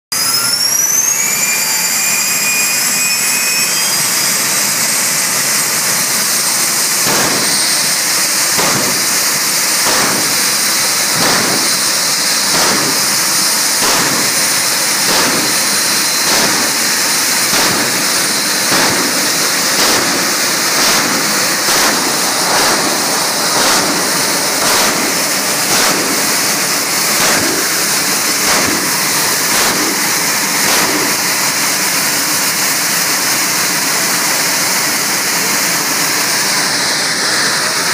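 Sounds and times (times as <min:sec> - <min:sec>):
rocket engine roaring: 0:00.2 - 0:37.9.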